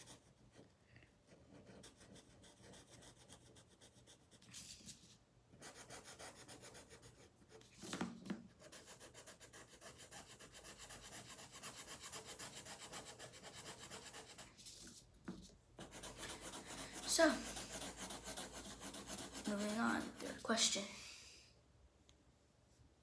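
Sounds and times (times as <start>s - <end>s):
marker rubbing on paper: 1.5s - 4.8s, 5.6s - 8.0s, 8.6s - 15.0s, 15.8s - 20.7s.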